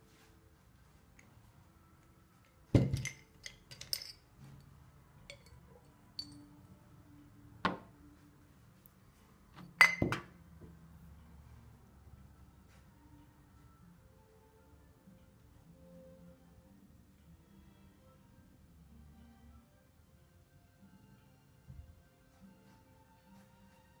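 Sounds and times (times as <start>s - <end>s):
hard objects clinking on table: 2.7s - 4.2s, 5.3s - 5.6s, 9.7s - 10.3s.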